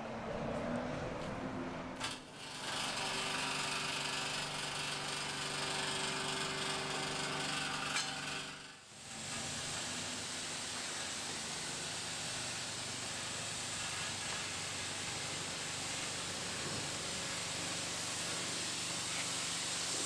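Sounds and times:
pressure washer spraying water: 0:08.9 - 0:20.0.

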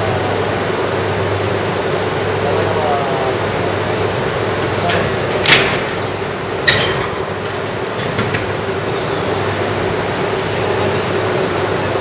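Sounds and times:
train equipment humming: 0:00.0 - 0:12.0
train couplers clanking: 0:04.8 - 0:09.2.

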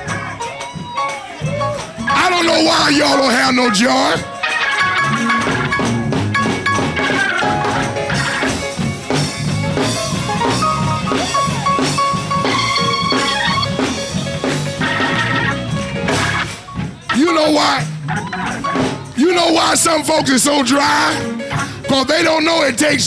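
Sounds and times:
drum kit beat: 0:00.0 - 0:23.0
gospel band music: 0:00.0 - 0:23.0
pulsing bass line: 0:01.4 - 0:22.0.

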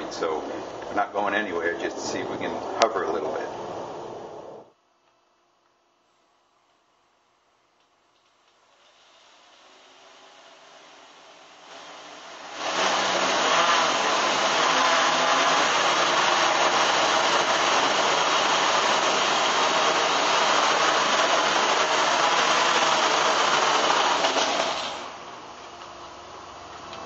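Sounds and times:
quadcopter motors whirring: 0:11.5 - 0:25.1.

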